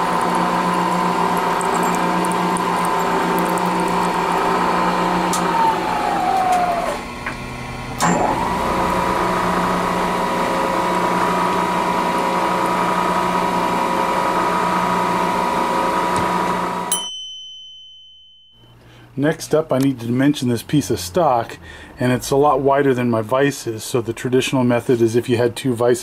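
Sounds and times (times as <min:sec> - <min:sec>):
milling machine spindle whine: 0:00.0 - 0:16.9.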